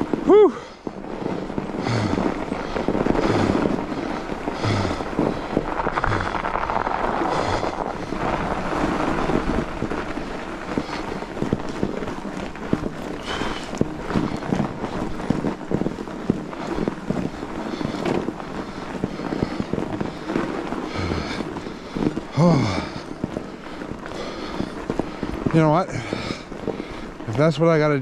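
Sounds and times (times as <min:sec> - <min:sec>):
bike tyres rolling on snow: 0:00.0 - 0:28.0
person breathing hard: 0:00.3 - 0:09.2, 0:13.2 - 0:15.3, 0:16.6 - 0:27.2.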